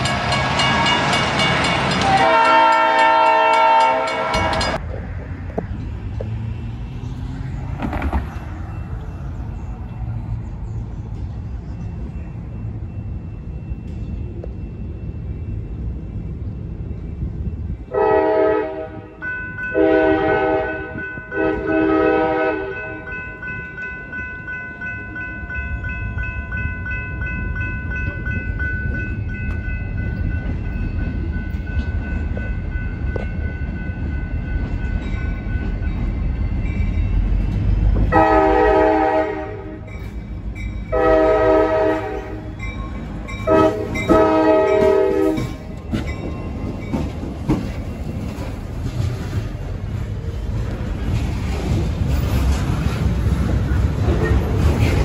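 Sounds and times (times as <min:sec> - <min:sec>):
locomotive air horn blasts: 0:02.0 - 0:04.8, 0:17.9 - 0:23.0, 0:38.1 - 0:39.9, 0:40.9 - 0:42.4, 0:43.4 - 0:45.5
locomotive engine rumble: 0:24.8 - 0:55.0.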